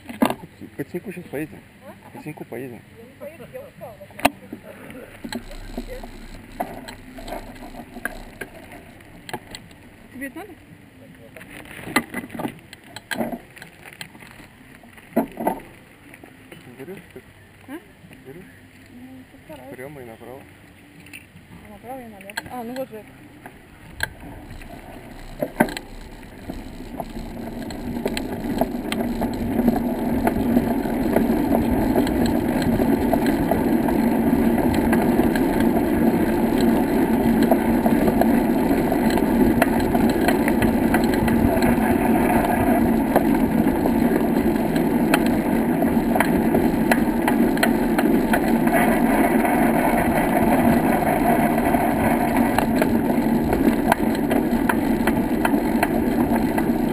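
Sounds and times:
wheels rolling over brick paving: 3.1 - 20.6, 21.5 - 56.9
small clicks and rattles: 5.1 - 9.9, 22.2 - 56.9
wind on microphone: 23.8 - 56.9.

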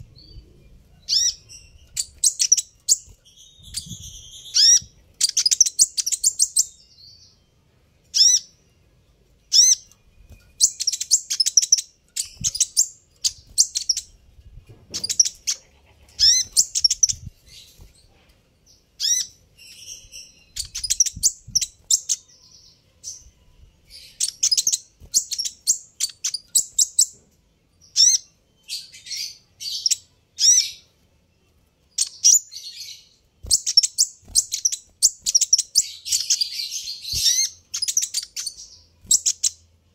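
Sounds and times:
bird chirping and twittering: 0.0 - 31.0, 31.9 - 39.8.

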